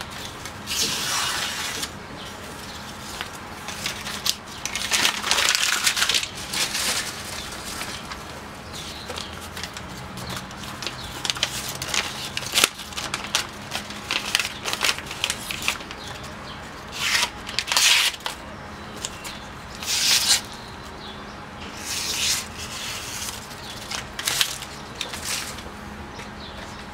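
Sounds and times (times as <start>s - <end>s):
knife slicing newspaper: 0.6s - 2.0s, 16.9s - 18.3s, 19.8s - 20.6s.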